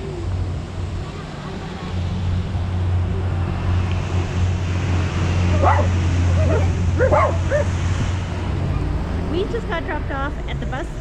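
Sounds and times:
steady low hum: 0.0 - 11.0
small dog high calls: 5.5 - 7.7.

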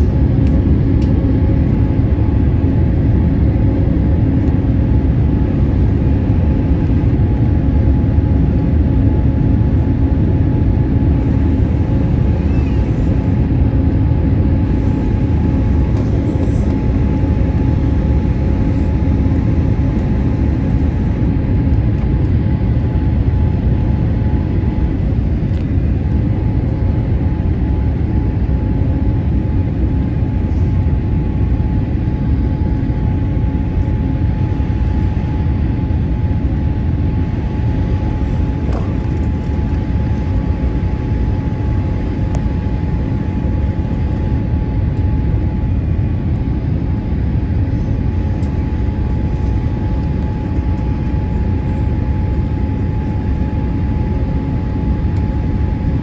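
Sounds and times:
jet airliner cabin noise: 0.0 - 56.0.

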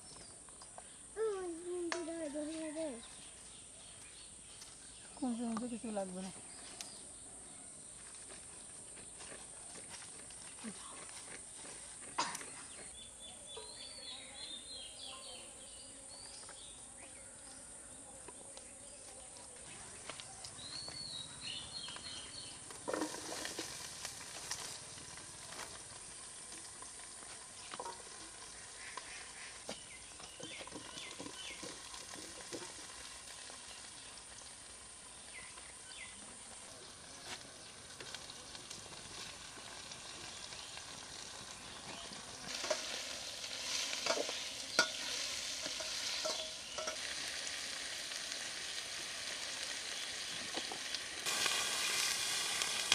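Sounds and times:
birds chirping: 0.0 - 9.6, 10.4 - 23.0, 27.2 - 32.7, 35.0 - 38.0, 39.9 - 47.5
food sizzling in oil: 20.6 - 52.9
spoon scraping a pan: 22.8 - 23.8, 42.5 - 47.1.

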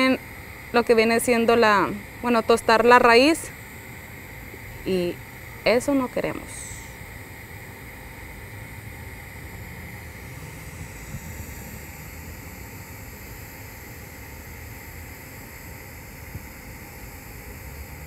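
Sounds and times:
welding arc hissing: 0.0 - 18.0.

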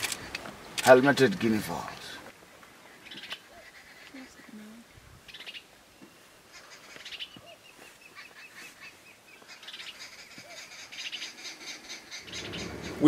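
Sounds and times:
guineafowl calling: 2.6 - 13.0.

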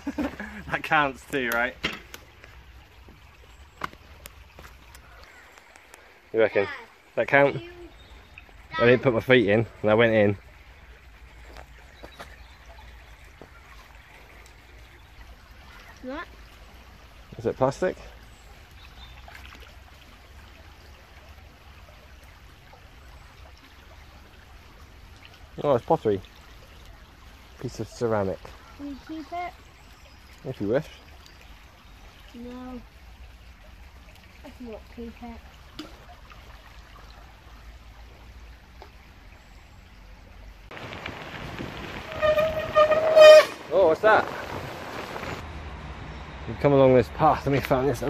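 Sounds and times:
outdoor hiss: 0.0 - 3.2, 40.7 - 45.8
river water running over stones: 0.0 - 48.0.

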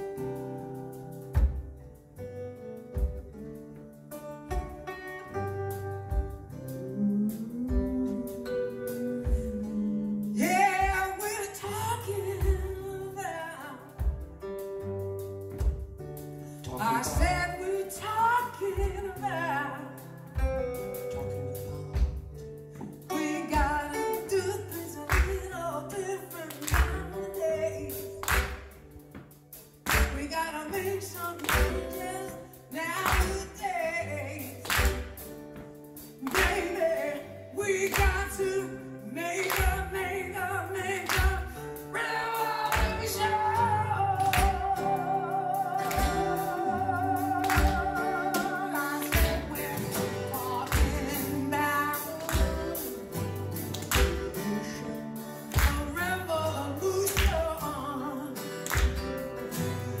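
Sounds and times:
acoustic guitars: 0.0 - 60.0
kick drum beat: 1.4 - 1.8, 6.1 - 6.5, 9.2 - 9.6, 14.0 - 14.4, 15.6 - 16.0, 17.2 - 17.5, 22.0 - 22.4
person singing: 6.5 - 14.3, 16.6 - 22.2, 22.8 - 28.6, 29.9 - 35.2, 36.0 - 60.0.

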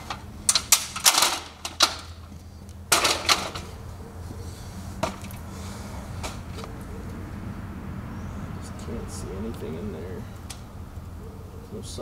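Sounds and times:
metal stepladder clanking: 0.0 - 2.3, 2.9 - 3.8.

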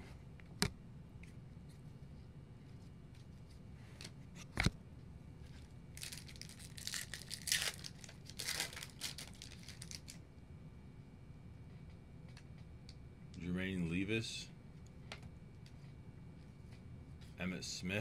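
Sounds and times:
wrapper tearing and crinkling: 6.0 - 10.2.

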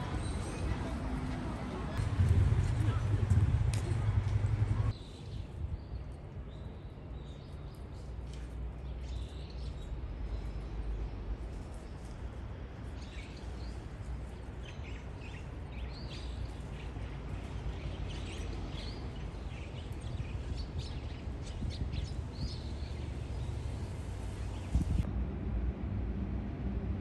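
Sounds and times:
sparrows chirping: 0.0 - 2.3, 2.9 - 12.2, 12.9 - 25.0
low background rumble: 1.6 - 5.0.

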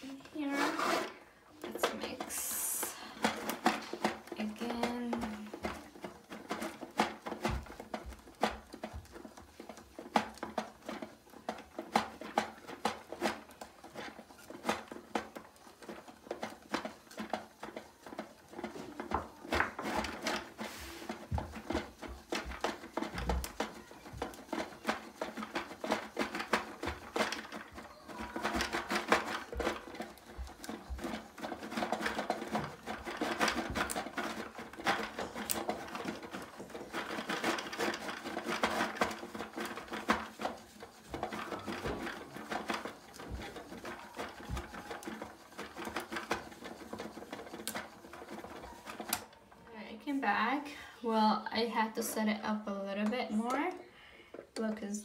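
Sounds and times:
plastic toy mechanism clicking: 1.6 - 49.4.

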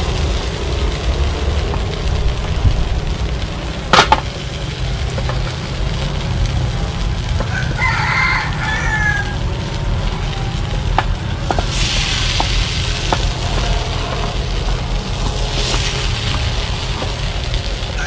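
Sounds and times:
steady low rumble: 0.0 - 18.0
rooster crowing: 7.4 - 9.6, 17.8 - 18.0.

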